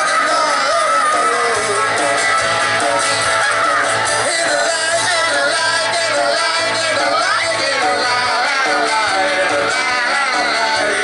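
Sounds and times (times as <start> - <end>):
man singing: 0.0 - 2.4, 4.2 - 11.0
electric and acoustic guitars: 0.0 - 11.0.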